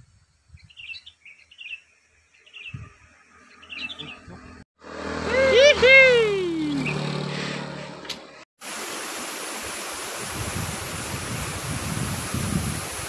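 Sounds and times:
motorbike engine hum: 0:03.8 - 0:08.4
waterfall rushing: 0:08.6 - 0:13.0.

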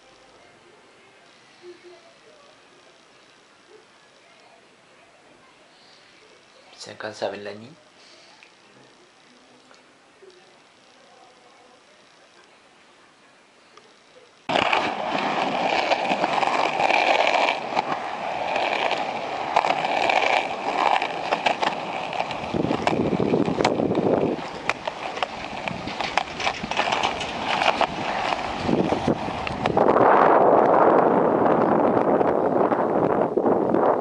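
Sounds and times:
skateboard rolling on concrete: 0:14.4 - 0:34.0
skateboard clacks: 0:14.5 - 0:29.9.

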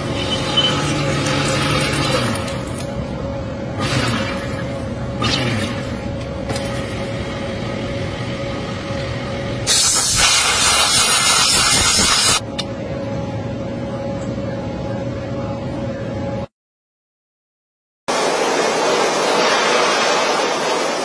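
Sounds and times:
milling machine whine: 0:00.0 - 0:09.7
spray hissing: 0:09.7 - 0:12.4.

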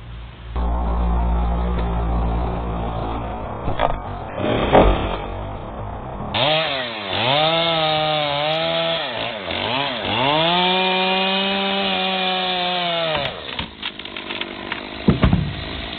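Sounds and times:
chainsaw cutting wood: 0:06.3 - 0:15.9
short cracks and knocks: 0:13.1 - 0:15.9.

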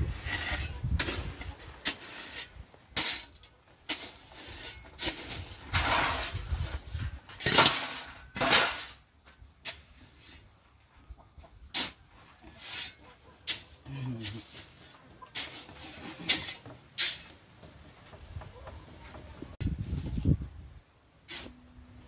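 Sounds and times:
gravel rattling onto ground: 0:00.0 - 0:09.8
shovel scraping gravel: 0:00.0 - 0:10.5, 0:11.7 - 0:17.4, 0:21.2 - 0:21.6.

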